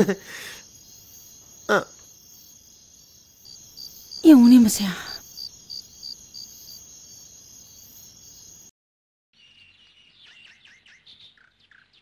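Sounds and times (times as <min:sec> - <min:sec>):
cricket chirping: 0:00.0 - 0:08.7
high-pitched insect trill: 0:00.0 - 0:08.7.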